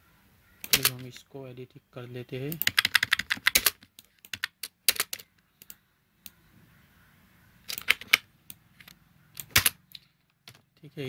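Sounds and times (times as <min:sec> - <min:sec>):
computer mouse and keyboard clicks: 0:02.5 - 0:05.8, 0:07.7 - 0:10.1.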